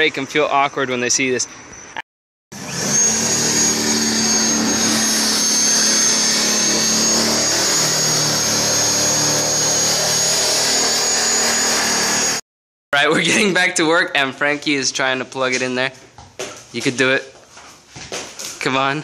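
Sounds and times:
rotary tool grinding: 2.6 - 12.4.

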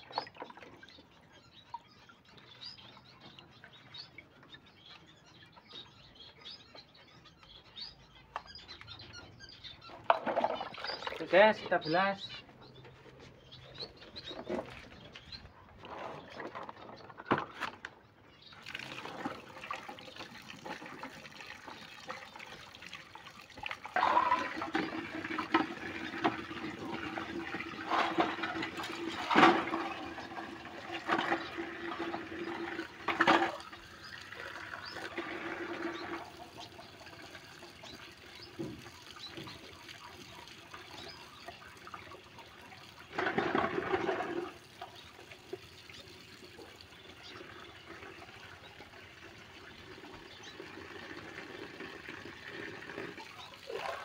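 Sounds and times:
water splashing in a bucket: 0.0 - 1.1, 10.0 - 12.3, 18.5 - 54.0
running outdoor tap: 0.0 - 54.0
containers knocking against bucket: 10.0 - 11.2, 23.9 - 33.8, 43.1 - 44.6.

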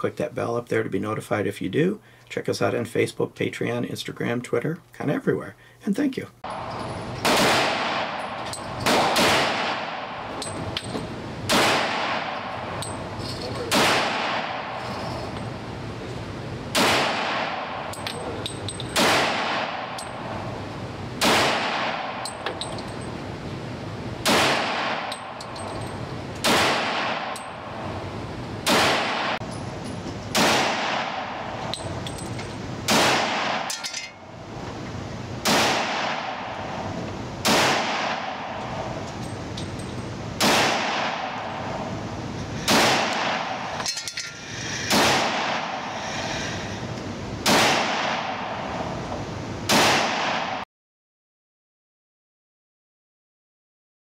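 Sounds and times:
pistol shots indoors: 6.9 - 10.4, 11.5 - 12.7, 13.6 - 15.0, 16.7 - 17.9, 18.9 - 20.0, 21.2 - 22.3, 24.2 - 25.3, 26.4 - 27.4, 28.6 - 29.4, 30.3 - 31.6, 32.9 - 33.7, 35.4 - 36.5, 37.4 - 38.9, 40.4 - 41.7, 42.6 - 43.8, 47.4 - 48.6, 49.7 - 50.6.

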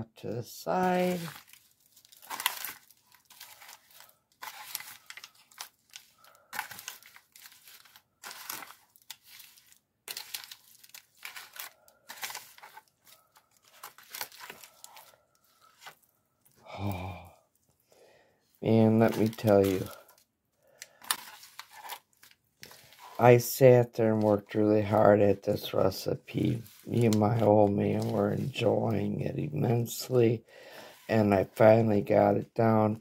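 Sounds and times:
aluminium foil pan crinkling: 0.7 - 16.6, 18.7 - 23.2, 26.4 - 29.2.

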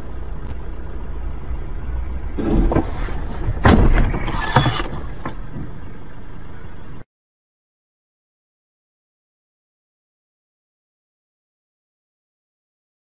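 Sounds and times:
car road rumble: 0.0 - 7.0
car crunching into snowbank: 2.4 - 5.8.

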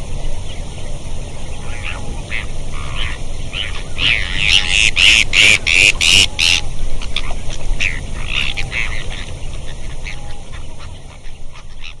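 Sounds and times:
steady low rumble: 0.0 - 12.0
waterfowl calling: 1.6 - 12.0.

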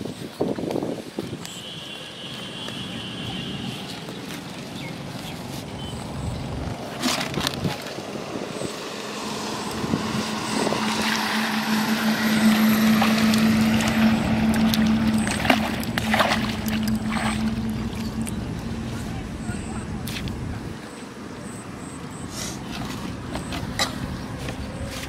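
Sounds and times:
vehicle engine passing: 5.0 - 25.0.

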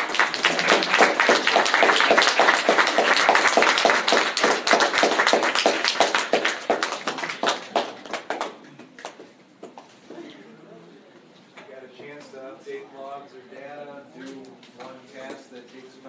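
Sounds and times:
audience applauding: 0.0 - 9.2.

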